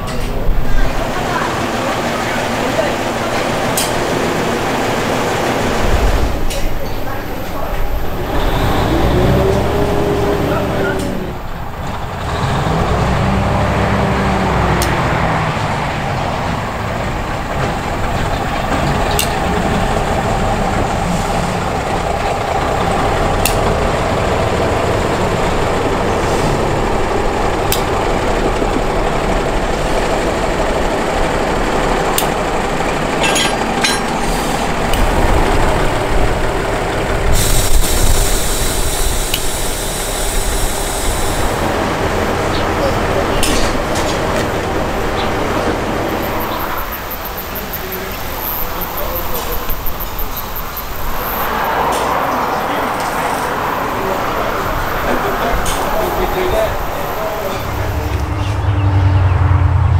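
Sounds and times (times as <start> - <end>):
train rumbling: 0.0 - 59.9
sharp clicks of train wheels: 1.9 - 9.7, 14.8 - 15.1, 16.4 - 58.2
train hiss: 26.0 - 27.2, 34.2 - 35.0, 37.0 - 41.9, 46.0 - 58.5.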